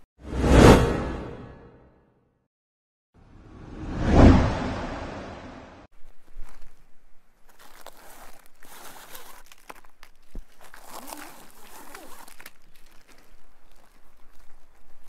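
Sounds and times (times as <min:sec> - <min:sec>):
plastic wrapping rustling: 0:07.4 - 0:15.0.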